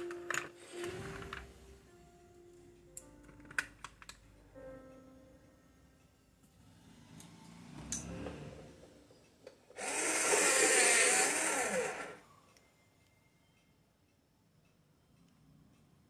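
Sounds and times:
small electric motor whirring: 0:09.8 - 0:12.2.

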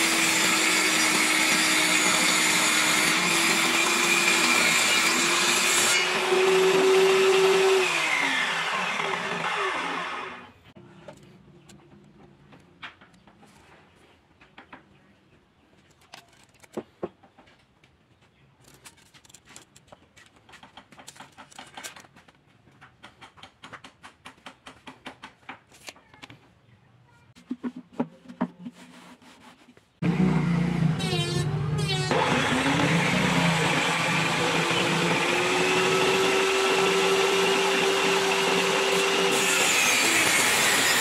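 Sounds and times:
table saw running: 0:00.0 - 0:10.6, 0:30.0 - 0:41.0
tape measure handled: 0:15.8 - 0:16.8, 0:18.6 - 0:22.4.

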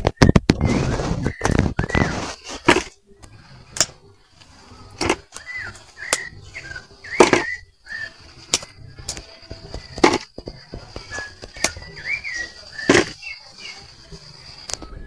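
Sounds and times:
faint steady high tone: 0:04.0 - 0:15.0
bird chirps: 0:05.2 - 0:08.8, 0:11.0 - 0:14.4.

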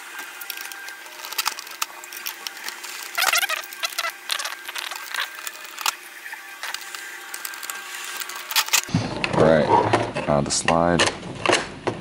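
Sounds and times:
plastic clattering: 0:00.2 - 0:06.0.

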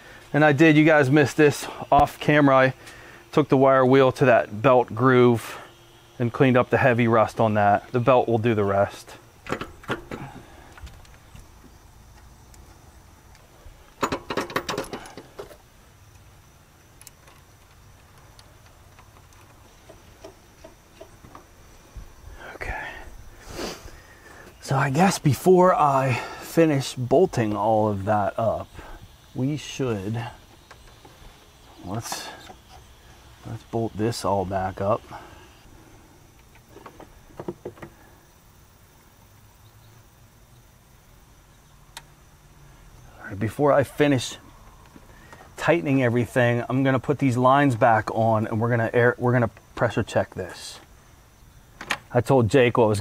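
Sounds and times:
faint steady hum: 0:00.0 - 0:53.0
light clicks and knocks: 0:09.4 - 0:21.5, 0:36.4 - 0:38.0.

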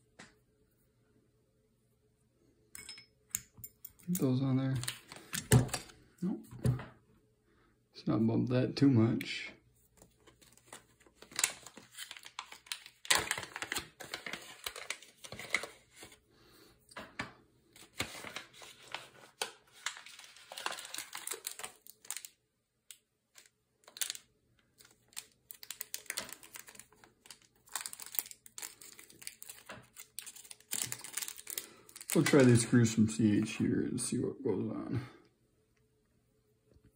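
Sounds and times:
plastic bag crinkling: 0:10.2 - 0:15.7, 0:19.8 - 0:22.4, 0:23.3 - 0:32.8.

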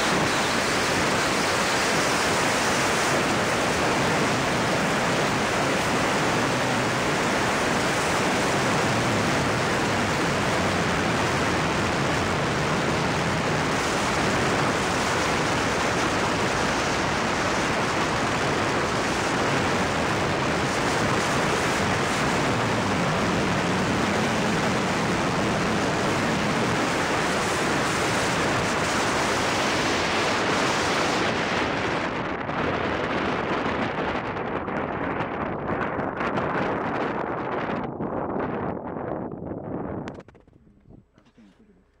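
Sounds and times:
wind rushing on microphone: 0:00.0 - 0:41.2.

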